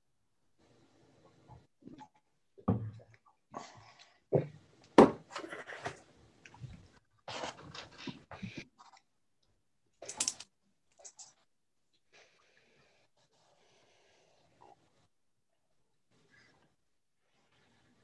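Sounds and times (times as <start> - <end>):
small handling noises: 4.8 - 12.1.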